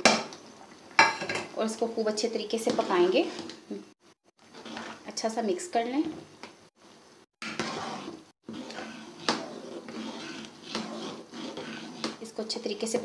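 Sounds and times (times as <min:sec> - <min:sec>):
spoon scraping cooking pot: 0:02.4 - 0:03.8, 0:04.4 - 0:05.2, 0:07.4 - 0:13.0.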